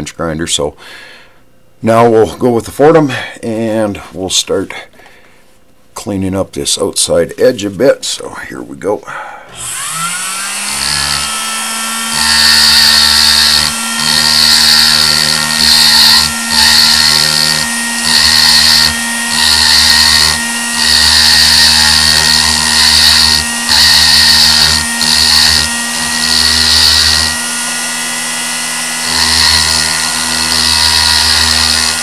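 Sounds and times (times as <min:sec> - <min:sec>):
rotary tool whining: 0:09.5 - 0:32.0
burr grinding steel: 0:09.6 - 0:32.0.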